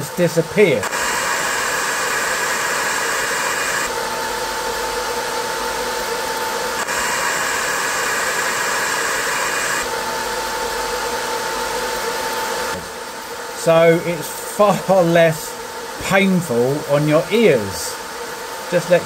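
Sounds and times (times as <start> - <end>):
cooling fan hissing: 0.0 - 19.0.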